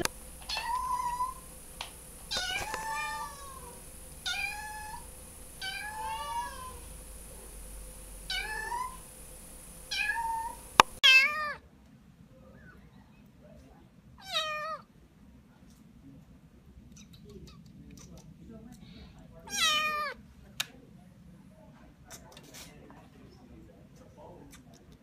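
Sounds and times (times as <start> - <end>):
kitten meowing: 0.0 - 1.4, 2.3 - 5.0, 5.6 - 6.9, 8.3 - 9.0, 9.9 - 11.6, 19.5 - 20.2.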